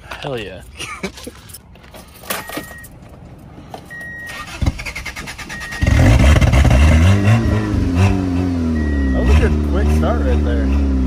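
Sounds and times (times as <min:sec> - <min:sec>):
car starter cranking: 0:04.0 - 0:07.7.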